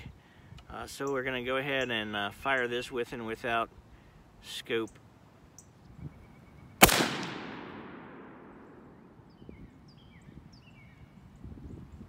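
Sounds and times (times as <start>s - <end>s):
rifle shot with echo: 6.8s - 9.2s.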